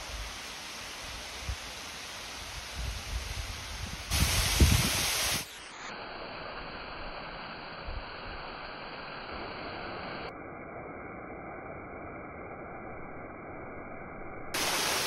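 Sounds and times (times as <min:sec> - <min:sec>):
wind rumble on microphone: 0:02.6 - 0:05.4
waterfall rushing: 0:14.6 - 0:15.0.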